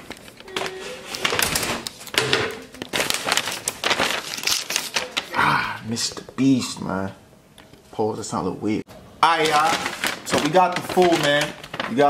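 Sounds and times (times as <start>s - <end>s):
paper bag rustling: 0.0s - 5.4s, 9.2s - 12.0s.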